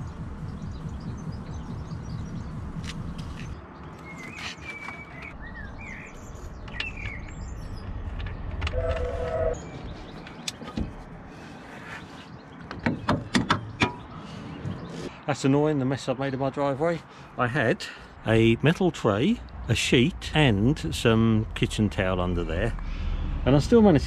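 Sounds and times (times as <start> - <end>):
low handling rumble: 0.0 - 3.6, 19.7 - 24.0
small birds chirping: 0.0 - 15.3.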